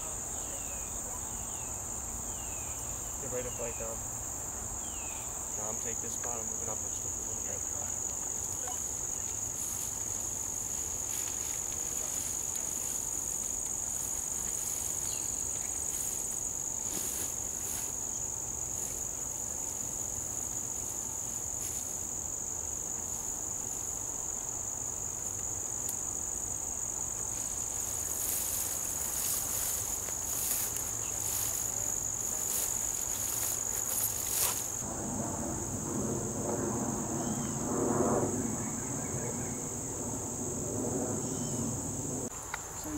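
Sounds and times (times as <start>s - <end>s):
insects trilling: 0.0s - 42.9s
rustling: 8.3s - 22.1s, 27.2s - 34.8s.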